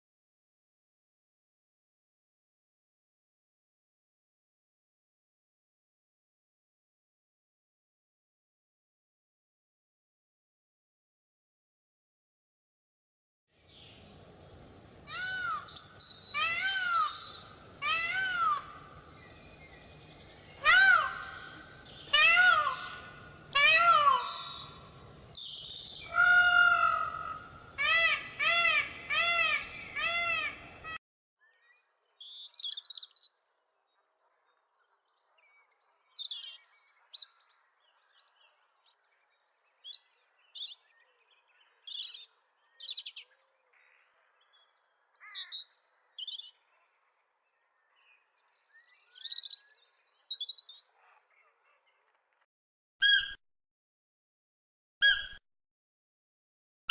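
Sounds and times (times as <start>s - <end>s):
peafowl wailing calls: 15.1s - 18.9s, 20.6s - 24.9s, 26.0s - 31.0s, 53.0s - 53.4s, 55.0s - 55.4s
high bird chirps: 53.0s - 53.4s, 55.0s - 55.4s.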